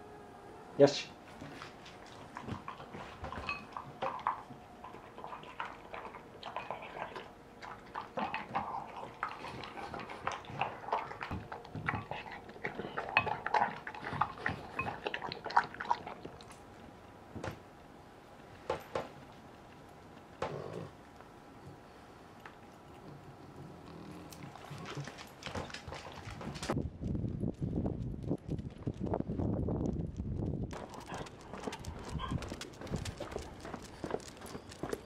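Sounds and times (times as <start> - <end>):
dog crunching food: 1.5 - 16.7, 22.4 - 26.8, 30.7 - 35.0.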